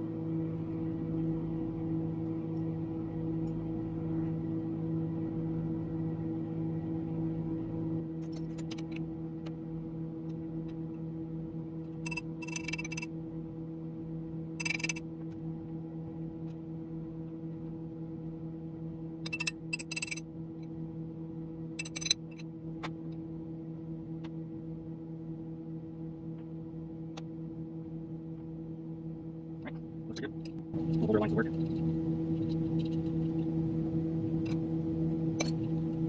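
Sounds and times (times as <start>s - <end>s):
low electrical hum: 0.0s - 36.0s
metallic clicks and clinks: 14.6s - 15.0s, 21.8s - 22.2s.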